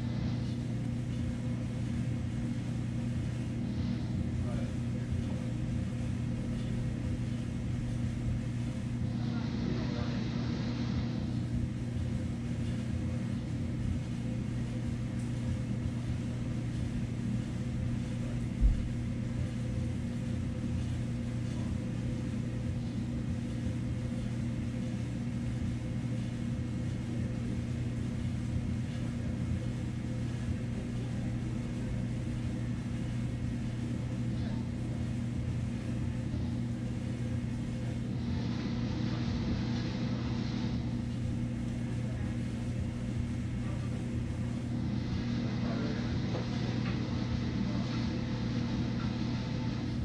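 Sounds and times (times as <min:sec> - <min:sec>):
low machine hum: 0:00.0 - 0:50.0.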